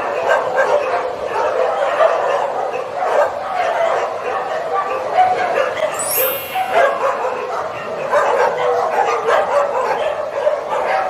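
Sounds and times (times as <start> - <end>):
dogs barking and whining: 0.0 - 11.0
shrill dog squeal: 5.8 - 7.3.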